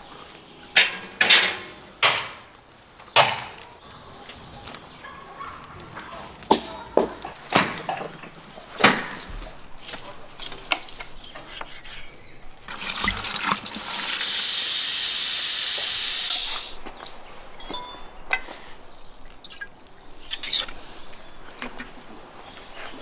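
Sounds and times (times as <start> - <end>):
steam hissing from pot valve: 12.7 - 16.8.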